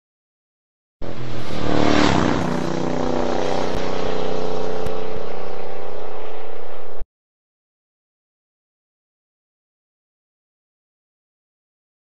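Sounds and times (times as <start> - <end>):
motorcycle engine running: 1.0 - 7.0
wind rush: 1.0 - 7.0.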